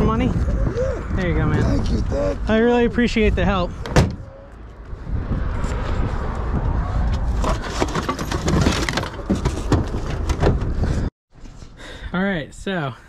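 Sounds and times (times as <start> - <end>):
truck engine and road rumble: 0.0 - 11.8
load rattling: 7.4 - 10.8.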